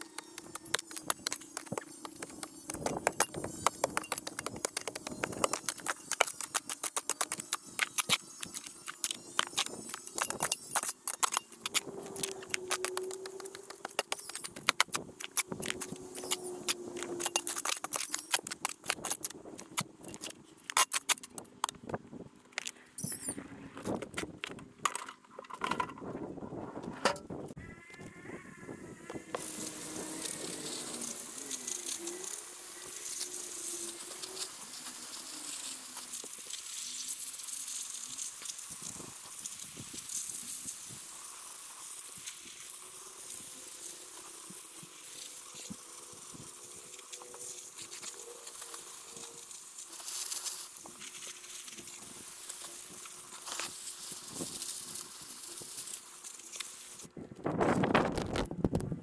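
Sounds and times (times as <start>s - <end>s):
shovel digging soil: 0.0s - 21.8s.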